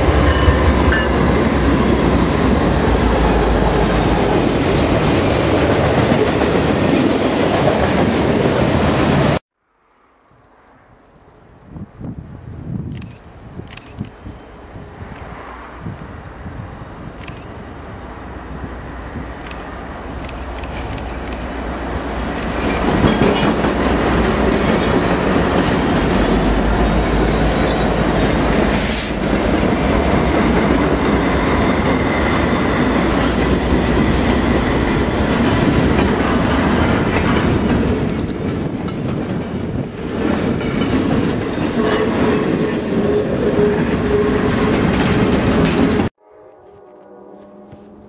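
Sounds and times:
diesel locomotives rumbling: 0.0 - 9.4, 10.2 - 46.5
train wheels clacking over rail joints: 22.2 - 26.9.

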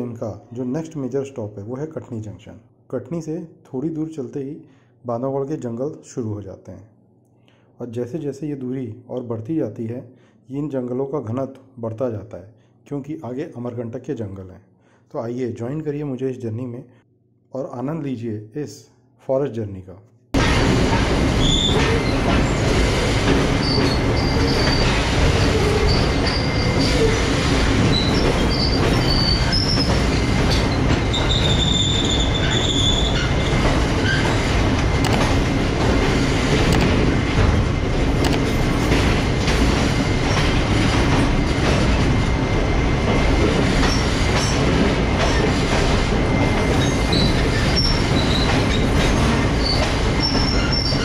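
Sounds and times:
train wheels rumbling on rails: 20.4 - 51.0
high wheel squeals: 23.6 - 34.5, 46.7 - 48.9, 49.6 - 51.0.

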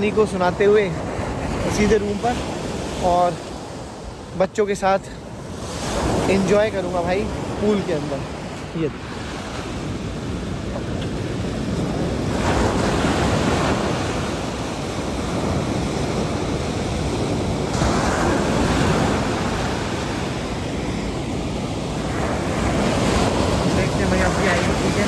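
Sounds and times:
sea waves breaking on beach: 0.0 - 25.0
wind buffeting microphone: 5.2 - 25.0.

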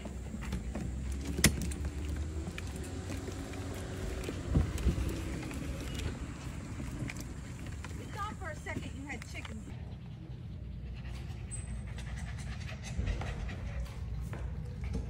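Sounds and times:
wagon frame rattling: 0.0 - 9.7
wagon wheels rumbling on asphalt: 0.0 - 9.8.

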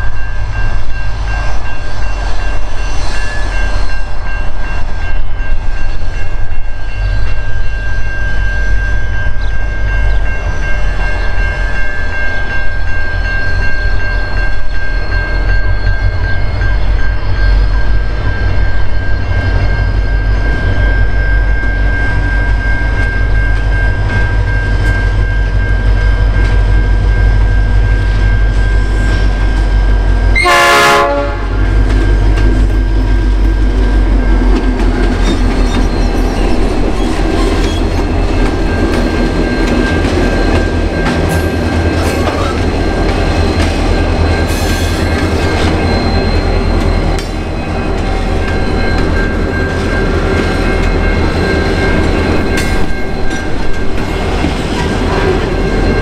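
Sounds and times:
diesel locomotive engines rumbling: 0.0 - 56.0
train wheels clattering on rails: 0.0 - 56.0
train horn blast: 30.3 - 31.8.

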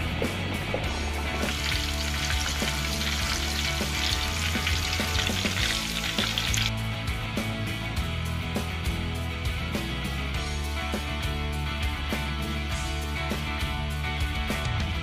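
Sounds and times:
background music: 0.0 - 15.0
shrimp deep-frying in oil: 1.3 - 6.7.

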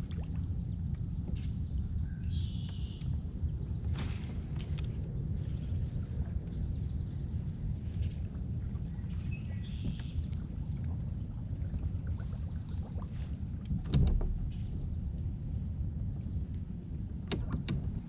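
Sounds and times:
low rumble of boat on water: 0.0 - 18.0.

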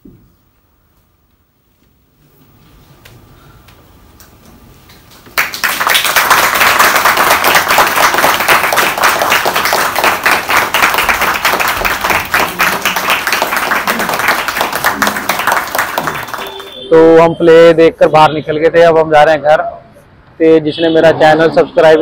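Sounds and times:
audience applauding: 5.3 - 16.9.

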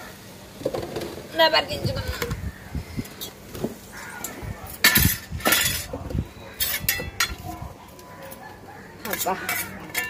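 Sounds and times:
metal pot and plate clinking: 4.8 - 5.9, 6.6 - 7.4, 9.0 - 10.0.

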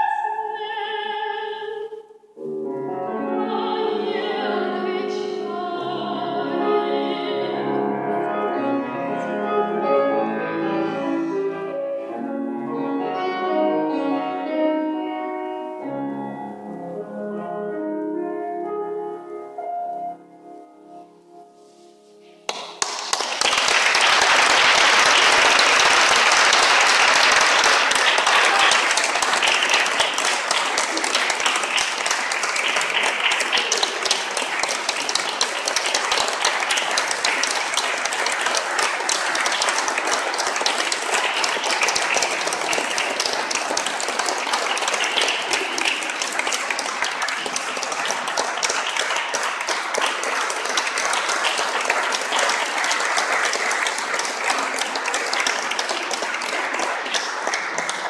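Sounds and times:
audience applauding: 22.5 - 58.0.

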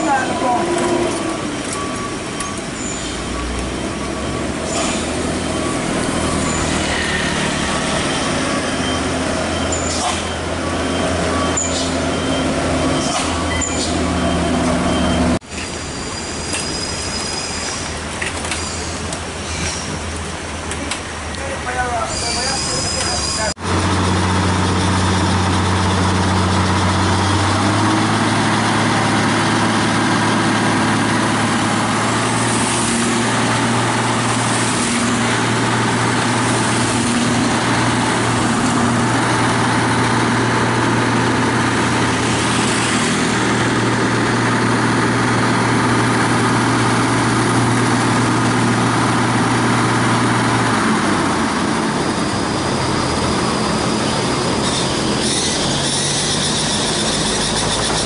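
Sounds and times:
diesel truck engine idling: 23.5 - 58.0.

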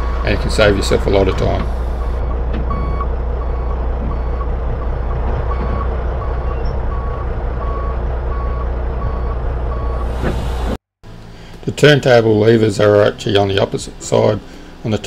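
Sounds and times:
diesel engine idling: 0.0 - 15.0
truck reversing beeper: 1.7 - 10.8.

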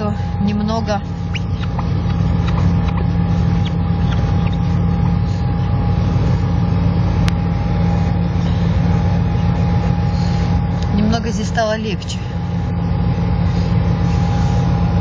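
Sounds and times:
car engine and tyre drone: 0.0 - 10.9
thin steady whine: 0.0 - 15.0.

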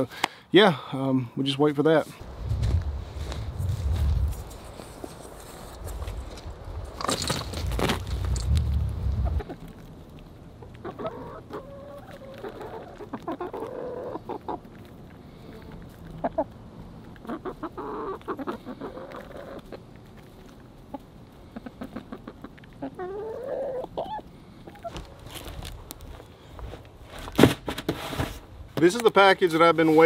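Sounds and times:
hens clucking: 9.1 - 9.8, 10.6 - 25.2.

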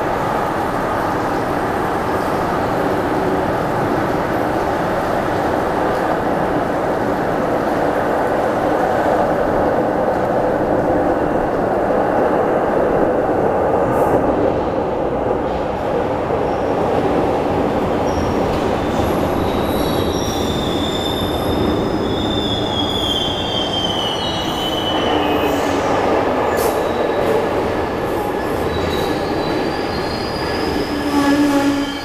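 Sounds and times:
train wheels rumbling on rail: 0.0 - 32.0
high-pitched wheel squeals: 19.4 - 25.9, 28.7 - 32.0.

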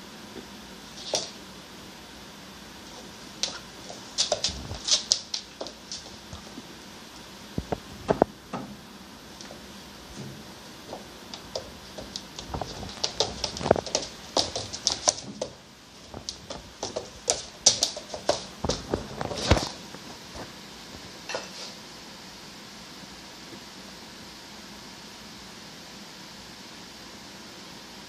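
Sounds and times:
dog claws clicking on wood floor: 3.4 - 6.4, 11.3 - 19.8.

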